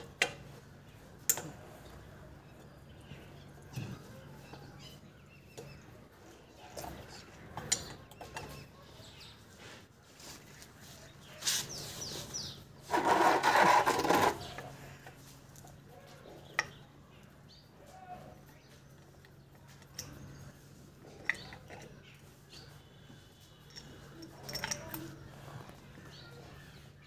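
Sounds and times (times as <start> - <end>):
rough rasping burst: 12.9 - 14.6.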